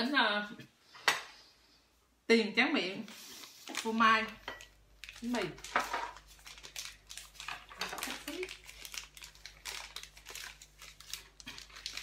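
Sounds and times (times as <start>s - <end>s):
wrapper crinkling: 3.0s - 12.0s.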